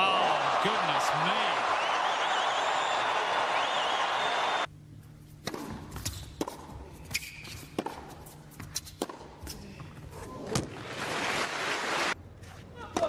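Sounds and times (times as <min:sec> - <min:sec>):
tennis ball bounces: 0:05.4 - 0:09.5
tennis racquet hits: 0:05.4 - 0:09.6
shoe squeaks: 0:06.0 - 0:06.4, 0:07.0 - 0:09.6.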